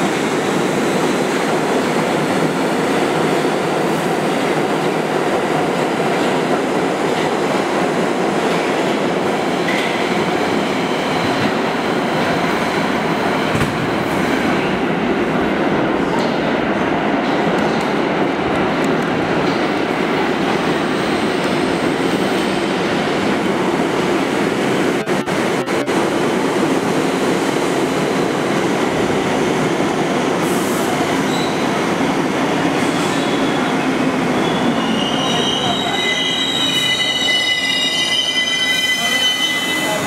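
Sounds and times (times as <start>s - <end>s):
subway train rumbling past: 0.0s - 40.0s
train brakes squealing: 31.2s - 31.7s, 32.9s - 40.0s.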